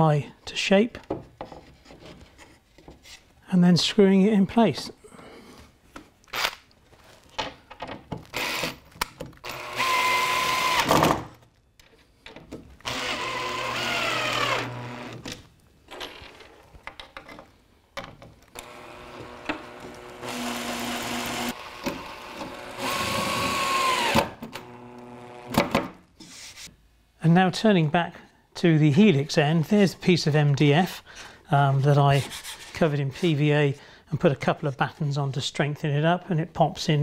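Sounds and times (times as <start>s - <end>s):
drill driving screws: 8.3s - 8.8s, 9.4s - 11.1s, 12.8s - 15.2s, 18.5s - 25.8s
clicks and handling knocks: 15.2s - 18.6s.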